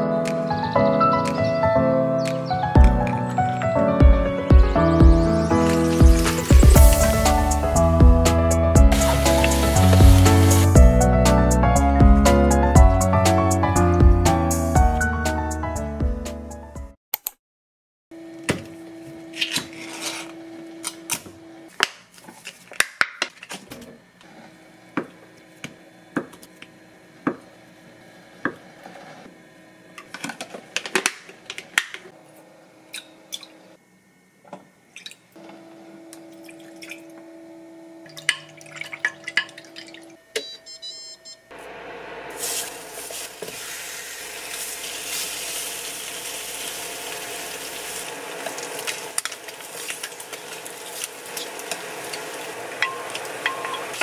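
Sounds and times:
meat sizzling in frying pan: 42.3s - 54.0s
glass and spoon clinking: 52.8s - 53.9s.

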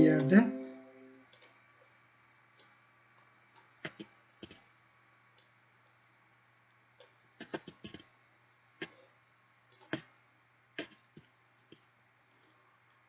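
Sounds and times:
computer mouse clicking: 3.5s - 4.6s, 7.0s - 8.1s.

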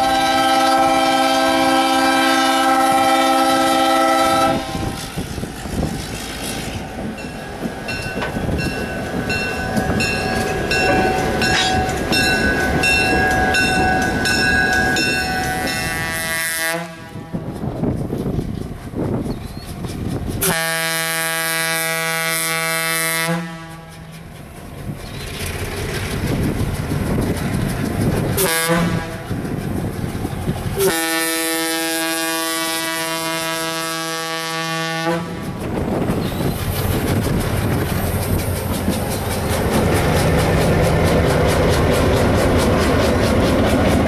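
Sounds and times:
locomotive air horn blasts: 0.0s - 5.1s, 15.5s - 17.5s, 20.4s - 24.0s, 28.4s - 29.3s, 30.8s - 35.5s
diesel engines and rolling wheels: 0.0s - 44.0s.

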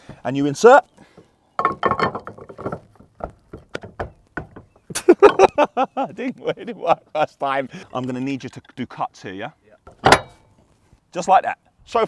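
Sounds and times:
metal clicks and knocks: 1.6s - 5.5s, 9.9s - 10.4s.

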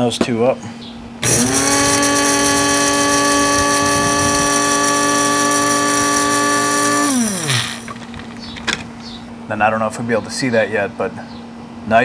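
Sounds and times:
electric grinder motor whine: 1.2s - 8.5s.

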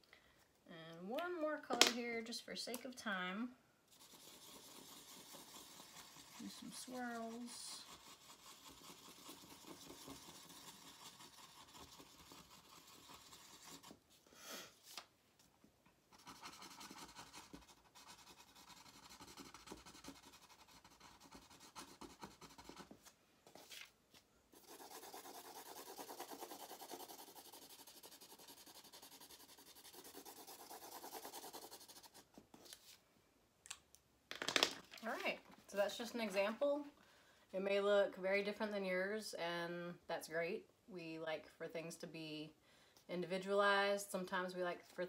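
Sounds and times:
marker scratching on paper: 3.9s - 14.0s, 16.2s - 23.0s, 24.5s - 32.8s.

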